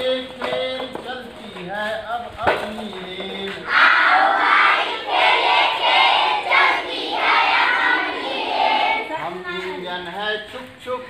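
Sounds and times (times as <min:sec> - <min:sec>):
young children chanting rhyme: 0:03.6 - 0:09.8.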